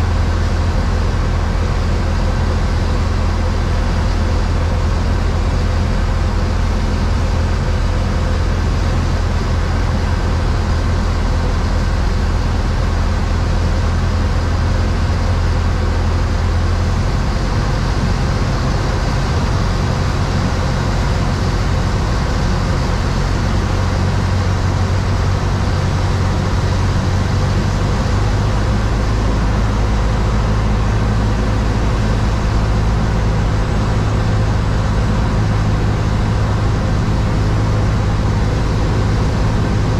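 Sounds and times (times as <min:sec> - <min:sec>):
airplane engine and propeller drone: 0:00.0 - 0:39.9.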